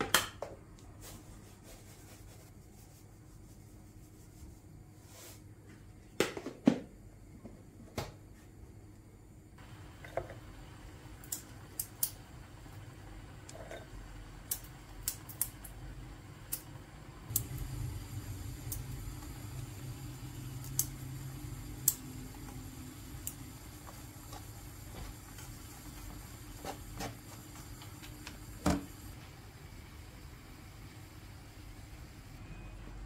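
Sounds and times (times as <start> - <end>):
wooden spoon stirring in a pan: 23.8 - 28.2.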